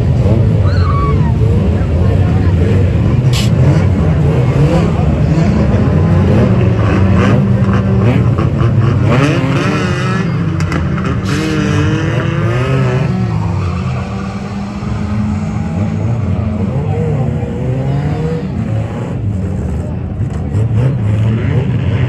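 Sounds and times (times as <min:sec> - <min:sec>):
racing car engines revving: 0:00.0 - 0:22.0.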